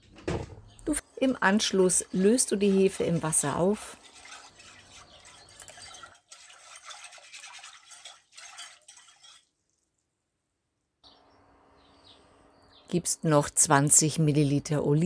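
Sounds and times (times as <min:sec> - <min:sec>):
utensil swishing and scraping bowl: 0:01.2 - 0:09.5.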